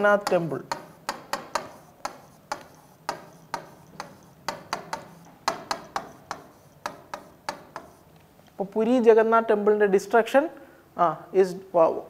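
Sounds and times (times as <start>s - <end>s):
marker pen tapping on whiteboard: 0.0s - 8.2s.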